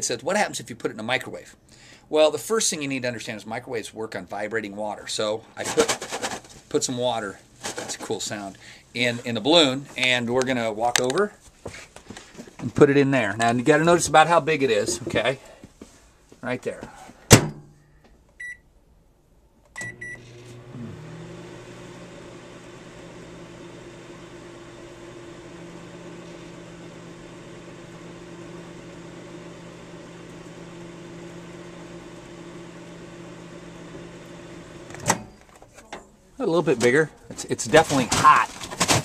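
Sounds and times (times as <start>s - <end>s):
keypad beeps: 18.4s - 18.6s, 19.8s - 20.2s
microwave oven humming: 19.8s - 35.4s.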